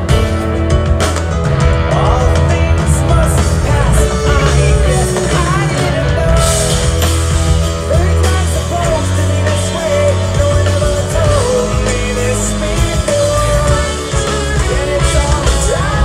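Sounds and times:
live rock band playing: 0.0s - 16.0s.

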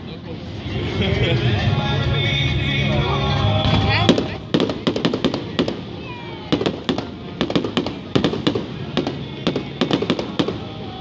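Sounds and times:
fireworks bangs and crackles: 3.6s - 11.0s.

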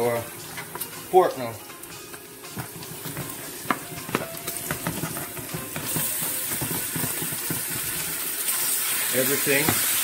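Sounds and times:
meat sizzling in hot oil: 0.0s - 10.0s
meat pieces landing in pan: 2.5s - 8.6s.

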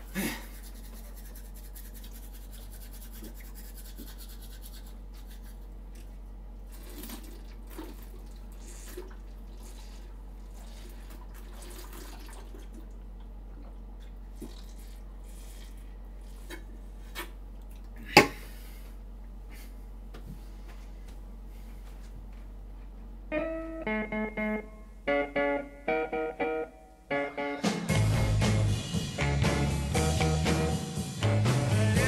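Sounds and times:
toothbrushing: 0.2s - 5.8s
liquid pouring into mouth: 6.7s - 13.0s, 13.6s - 15.8s.

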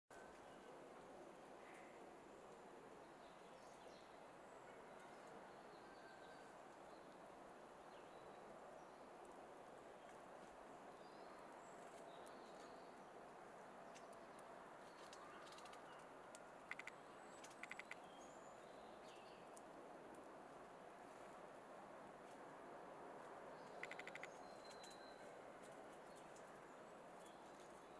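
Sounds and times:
faint outdoor ambience: 0.1s - 27.9s
faint bird chirps: 14.8s - 19.5s, 23.6s - 25.4s.

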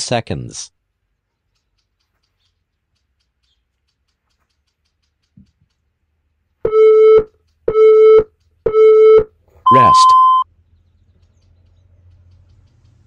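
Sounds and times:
short timer beeps: 6.7s - 10.4s.

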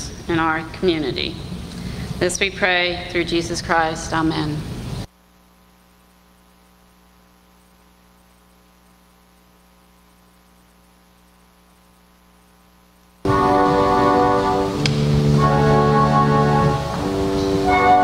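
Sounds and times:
electrical mains hum: 0.0s - 18.0s
instrumental music: 13.2s - 18.0s.

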